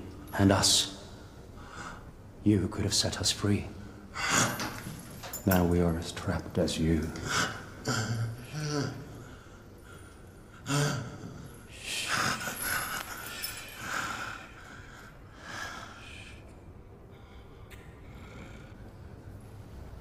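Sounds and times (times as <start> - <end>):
man grunting: 7.8 - 9.2.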